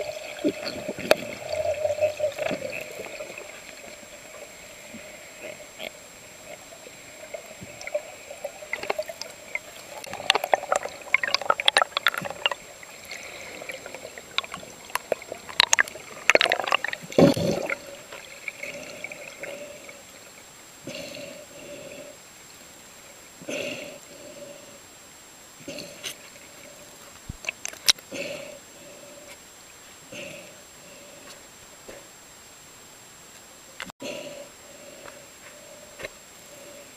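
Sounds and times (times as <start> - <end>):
underwater moving water bubbling: 0.0 - 24.7
sharp clicks underwater: 0.4 - 4.0, 7.3 - 18.3, 27.2 - 28.0.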